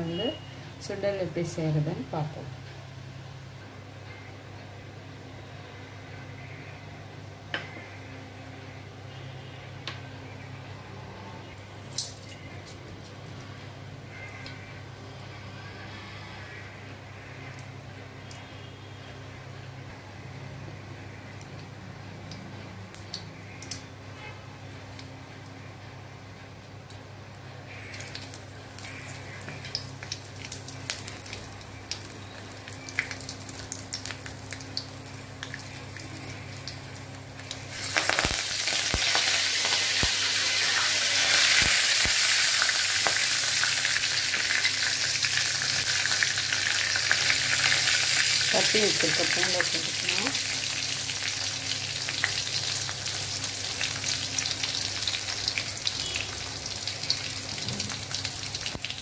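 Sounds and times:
chillies and garlic sizzling in oil: 0:00.0 - 0:02.5, 0:27.7 - 0:59.0
oil crackling in a wok: 0:27.8 - 0:59.0.

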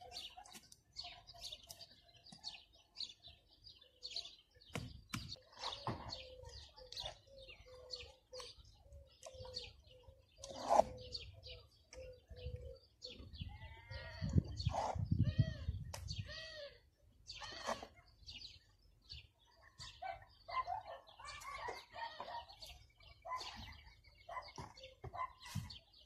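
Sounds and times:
small birds chirping: 0:00.0 - 0:26.0
trowel scraping on stone: 0:10.5 - 0:11.0.

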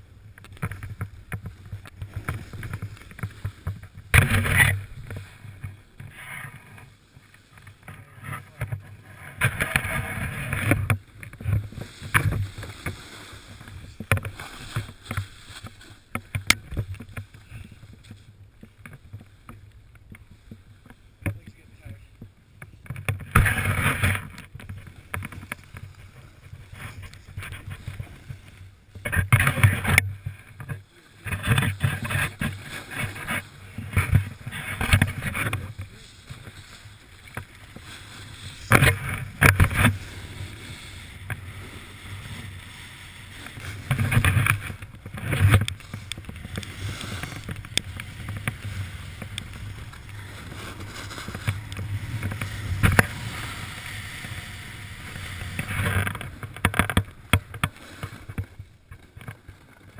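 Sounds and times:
snowboard scraping over snow: 0:00.0 - 0:18.2, 0:22.7 - 0:59.9.

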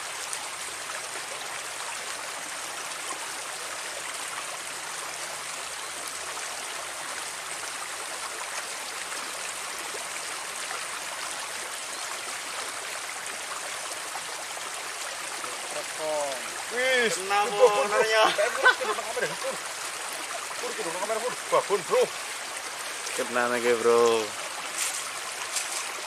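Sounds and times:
water running along a ditch: 0:00.0 - 0:26.0.

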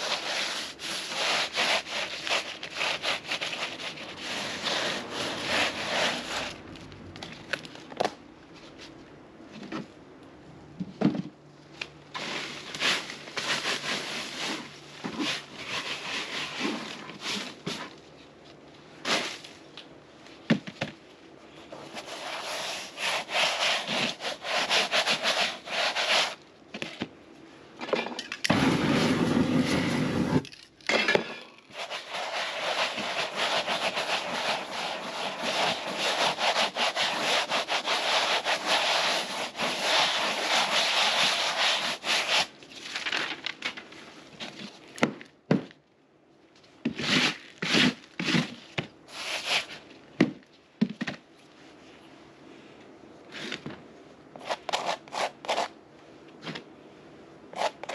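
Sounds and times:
hand scraping dry paint canvas: 0:00.0 - 0:06.7, 0:12.1 - 0:18.0, 0:21.6 - 0:26.4, 0:28.5 - 0:30.5, 0:31.7 - 0:42.8, 0:46.8 - 0:49.9, 0:54.4 - 0:55.8, 0:57.5 - 0:57.9.

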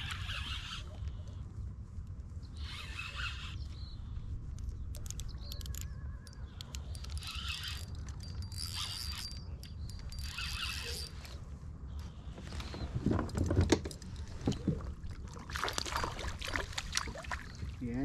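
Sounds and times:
fishing reel cranking with whine: 0:00.0 - 0:01.0, 0:02.6 - 0:03.7, 0:05.0 - 0:11.4
water splashing: 0:14.4 - 0:17.8.

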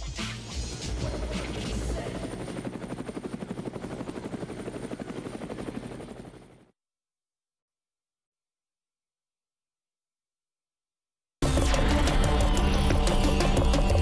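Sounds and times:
helicopter rotor chop: 0:00.0 - 0:06.7, 0:11.4 - 0:14.0.

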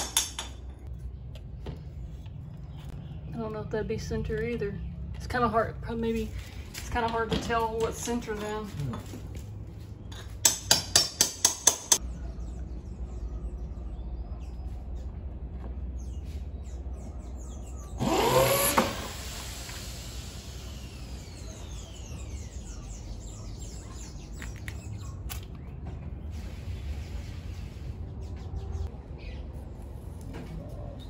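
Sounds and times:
power tool motor whirring: 0:18.0 - 0:21.5.

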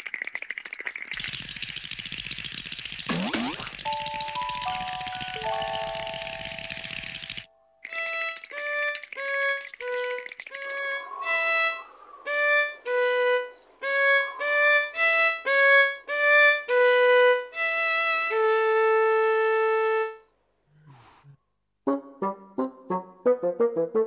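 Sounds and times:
solo violin: 0:12.3 - 0:20.2.

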